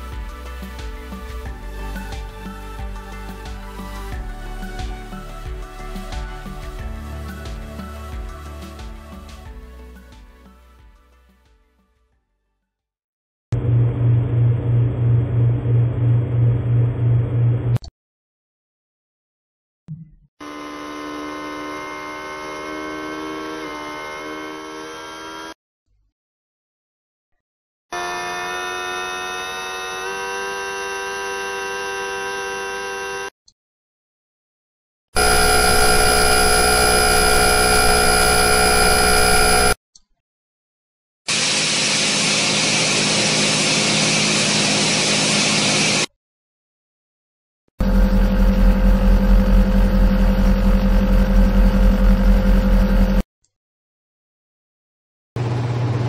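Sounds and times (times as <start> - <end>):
air conditioner compressor whine: 35.2 - 39.8.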